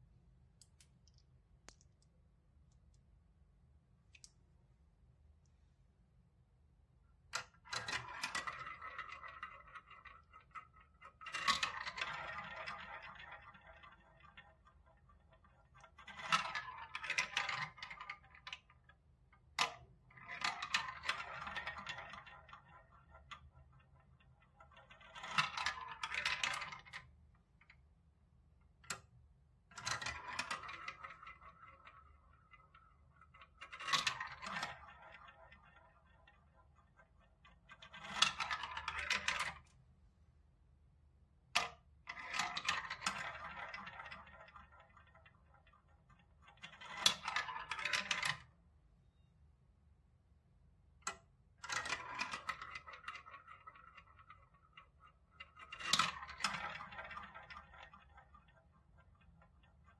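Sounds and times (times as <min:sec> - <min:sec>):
balls rattling through marble run: 0:07.1 - 0:39.9, 0:41.4 - 0:48.6, 0:50.9 - 0:59.9.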